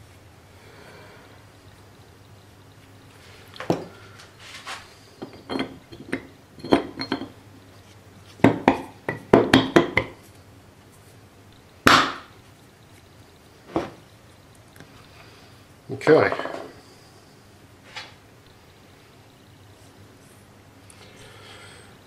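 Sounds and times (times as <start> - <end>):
steel parts clinking: 5.2 - 7.4.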